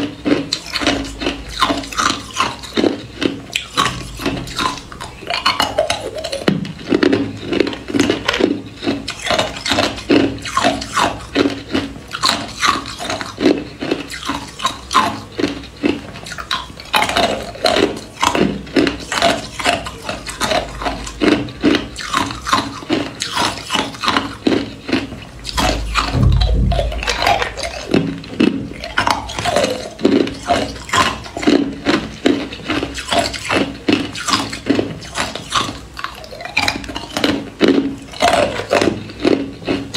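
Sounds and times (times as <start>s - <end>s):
dull low thump: 25.6s - 27.6s.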